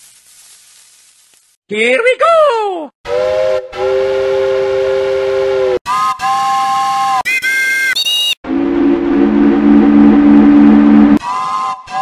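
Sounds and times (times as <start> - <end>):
multi-tone train horn blasts: 3.1 - 7.2
low horn chord: 8.5 - 11.2.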